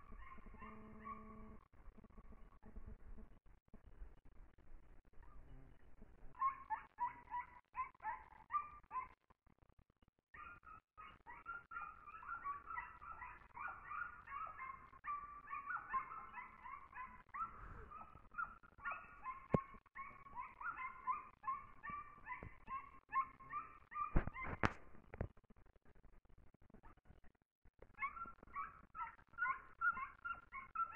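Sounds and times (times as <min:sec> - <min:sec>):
hound baying: 0:00.0 - 0:01.5, 0:06.3 - 0:09.2, 0:10.4 - 0:24.6, 0:28.0 - 0:30.9.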